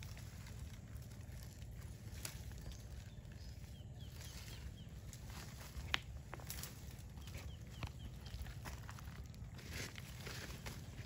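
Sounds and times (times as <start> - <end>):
faint bird chirps: 2.2 - 9.6.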